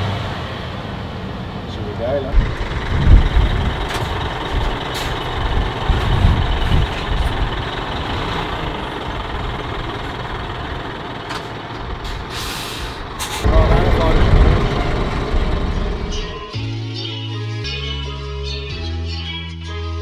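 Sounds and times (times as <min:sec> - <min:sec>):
truck diesel engine rumbling: 0:00.0 - 0:17.7
air hiss: 0:12.3 - 0:13.4.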